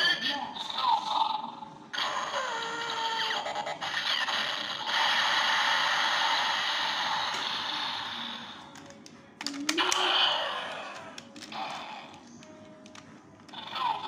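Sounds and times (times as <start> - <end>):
toy belt mechanical whir: 2.0 - 8.7
sharp plastic clicks: 8.7 - 10.1.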